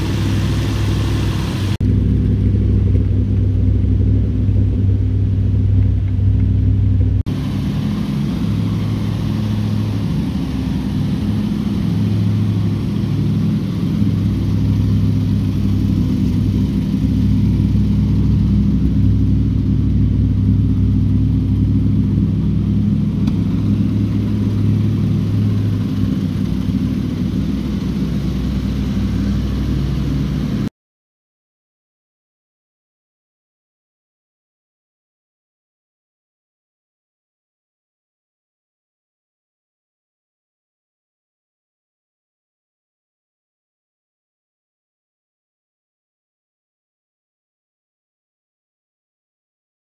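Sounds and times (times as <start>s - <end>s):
car engine idling: 0.0s - 30.7s.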